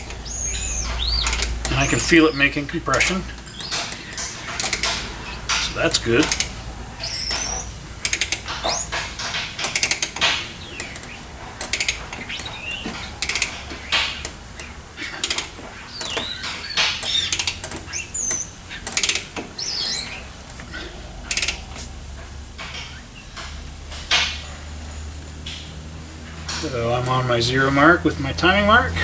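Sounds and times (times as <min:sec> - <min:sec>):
hand ratchet clicking: 0:00.0 - 0:22.0.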